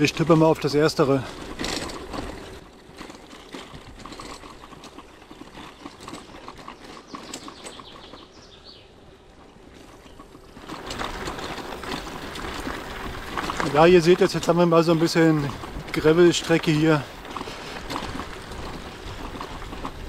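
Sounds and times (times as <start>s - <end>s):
bicycle rattling: 0.0s - 20.0s
bicycle tyres on gravel: 0.0s - 20.0s.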